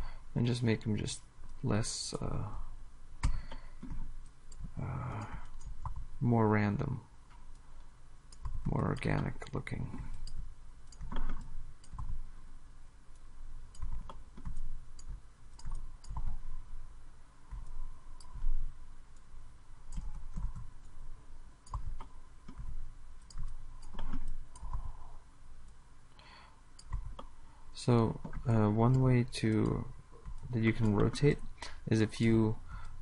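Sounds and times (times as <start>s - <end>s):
computer mouse clicks: 7.3s - 12.2s, 13.1s - 16.6s, 17.5s - 19.3s, 19.9s - 21.0s, 21.6s - 25.8s, 26.8s - 27.4s, 28.2s - 33.0s.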